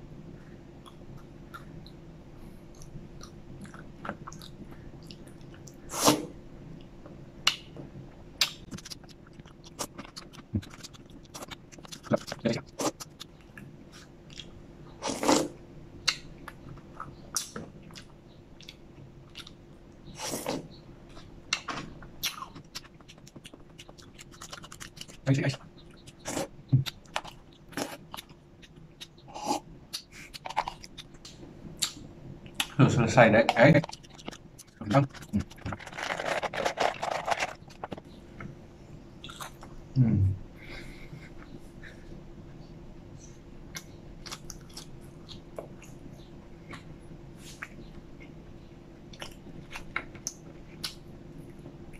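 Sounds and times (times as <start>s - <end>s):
mouth and chewing sounds: 2.7s - 6.2s, 8.4s - 32.8s, 33.5s - 38.5s, 39.2s - 39.8s, 43.3s - 48.5s, 49.1s - 51.9s
person eating fries: 33.7s - 38.0s
person humming low: 40.0s - 40.4s.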